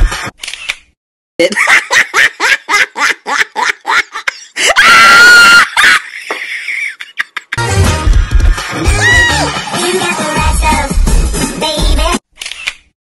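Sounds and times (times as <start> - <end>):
cartoon character laughing: 1.4 - 7.6
high-pitched scream: 4.6 - 5.9, 8.8 - 9.6.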